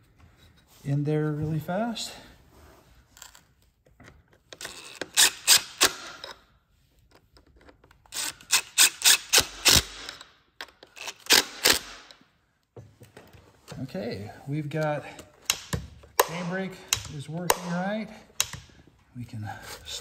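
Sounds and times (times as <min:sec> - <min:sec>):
hand driver clicking: 0:14.8 - 0:18.7.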